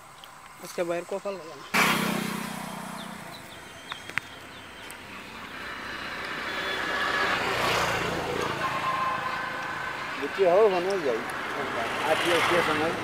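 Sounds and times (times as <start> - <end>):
vehicle engine approaching: 1.8 - 8.7.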